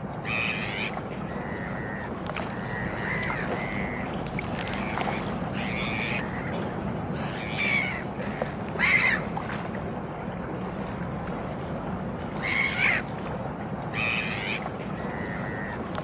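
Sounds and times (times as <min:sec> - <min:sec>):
gulls calling: 0:00.0 - 0:16.0
harbour ambience hiss: 0:00.0 - 0:16.0.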